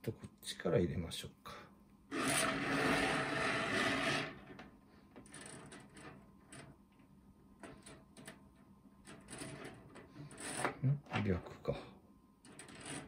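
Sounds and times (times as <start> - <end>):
wire coil scraping on wood: 2.1 - 6.8, 7.6 - 10.8, 12.4 - 13.0.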